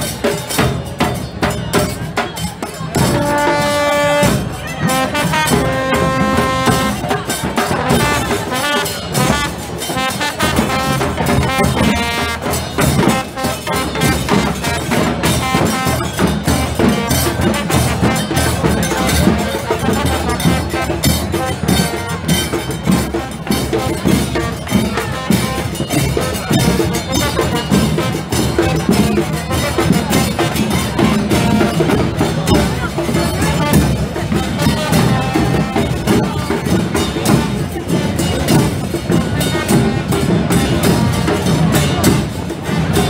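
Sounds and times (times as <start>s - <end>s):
drums beating: 0.0s - 43.0s
bass drum: 2.9s - 43.0s
brass horn held notes: 3.1s - 7.0s, 7.8s - 16.2s.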